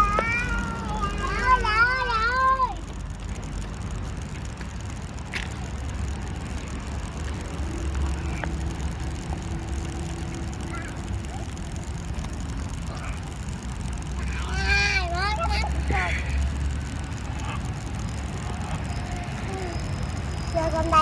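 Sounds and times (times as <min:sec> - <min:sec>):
faint engine hum: 0:00.0 - 0:21.0
street traffic rumble: 0:00.0 - 0:21.0.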